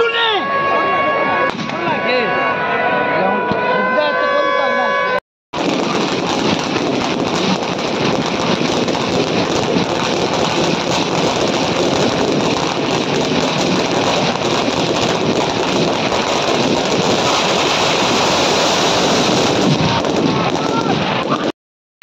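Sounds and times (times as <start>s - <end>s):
firecrackers crackling: 5.6s - 21.5s.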